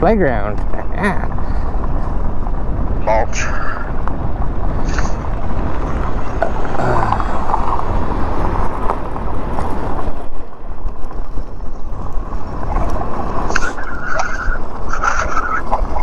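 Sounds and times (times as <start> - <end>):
wind rushing over microphone: 0.0 - 16.0
bike tyres on gravel: 4.0 - 16.0.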